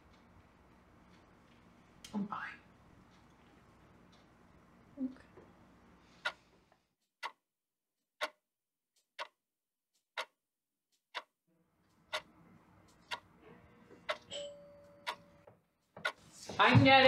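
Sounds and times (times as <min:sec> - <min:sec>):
wall clock ticking: 0:00.0 - 0:04.9, 0:05.5 - 0:07.4, 0:08.0 - 0:17.0
faint room tone: 0:00.0 - 0:06.9, 0:11.5 - 0:17.0.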